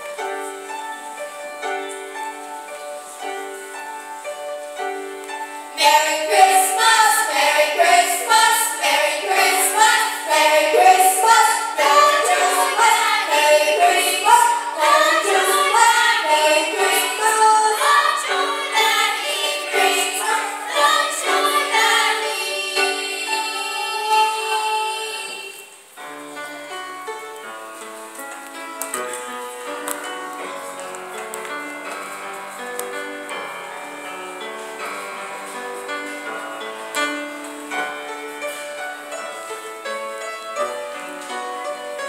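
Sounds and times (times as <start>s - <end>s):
piano accompaniment: 0.0s - 42.0s
children's choir singing: 4.7s - 25.9s.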